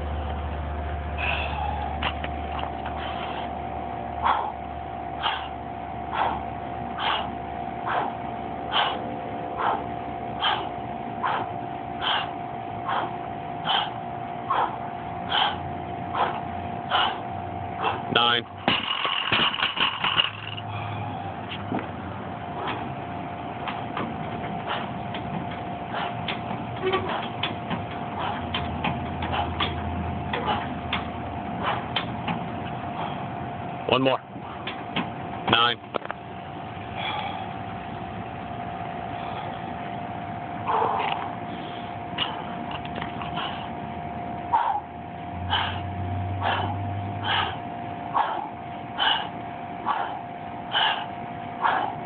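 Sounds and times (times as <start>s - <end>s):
steady high hum: 0.0s - 52.0s
hard fast breathing: 1.2s - 2.2s, 2.8s - 18.2s, 24.6s - 25.0s, 25.8s - 27.4s, 28.0s - 30.8s, 31.5s - 32.0s, 36.9s - 37.7s, 40.6s - 43.8s, 45.5s - 52.0s
metal pull-up rig clicking and clanking: 18.6s - 20.6s.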